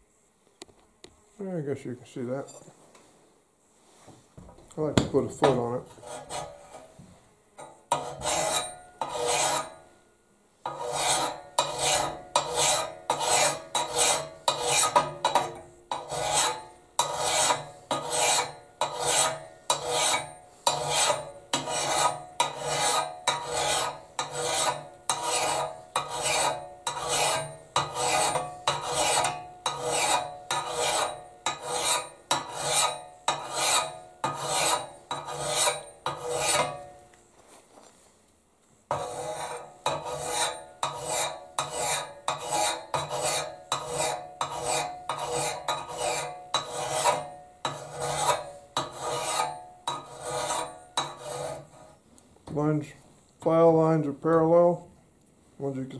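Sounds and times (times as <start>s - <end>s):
file rasping on steel: 5.4s - 7.0s, 7.6s - 9.8s, 10.6s - 36.9s, 38.9s - 52.0s.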